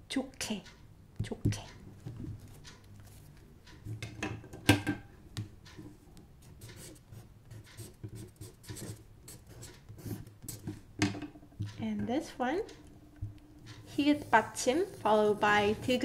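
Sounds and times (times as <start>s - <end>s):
pen scratching on paper: 6.7s - 10.8s, 13.8s - 16.0s.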